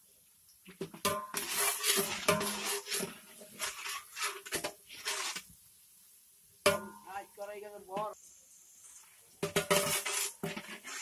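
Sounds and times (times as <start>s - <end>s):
metal ladle scraping a pot: 1.1s - 5.5s, 9.0s - 11.0s.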